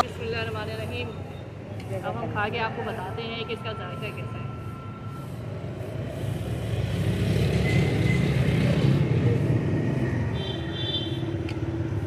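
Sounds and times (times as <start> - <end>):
vehicle engine passing by: 4.6 - 12.0.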